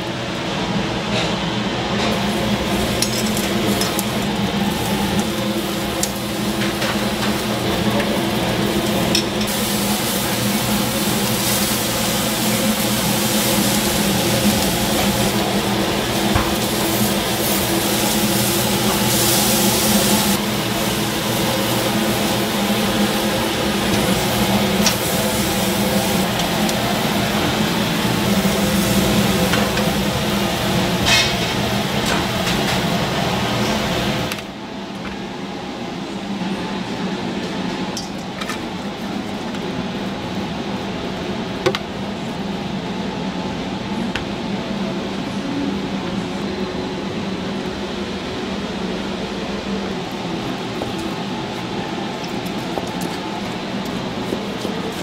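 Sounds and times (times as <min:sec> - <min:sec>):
food sizzling on hot surface: 0:02.1 - 0:33.2.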